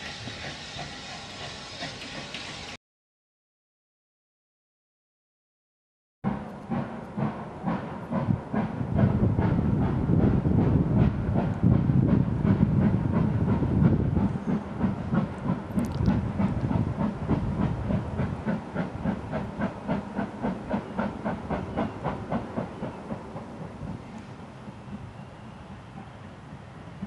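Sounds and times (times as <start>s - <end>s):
steam locomotive chuffing: 0.0s - 2.8s, 6.3s - 26.1s.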